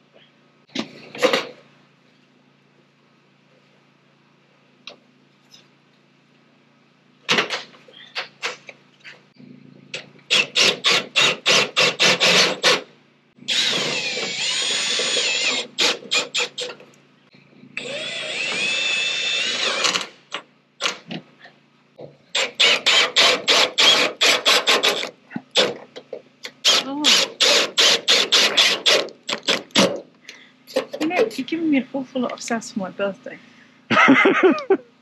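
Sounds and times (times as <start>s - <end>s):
drill motor whining: 10.3s - 12.8s, 13.5s - 16.8s, 17.8s - 20.4s, 22.3s - 25.7s, 26.4s - 29.8s
power drill rapid clicking: 10.3s - 12.8s, 13.5s - 16.7s, 17.8s - 20.2s, 22.4s - 25.7s, 26.4s - 30.0s.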